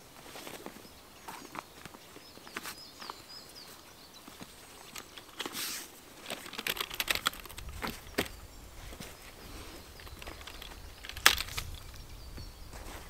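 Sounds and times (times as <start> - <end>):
chair frame clicking and knocking: 6.2 - 8.4, 10.0 - 12.0.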